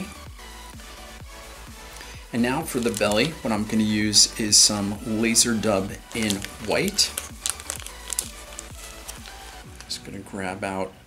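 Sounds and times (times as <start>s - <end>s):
quiet background music with bass: 0.0s - 11.0s.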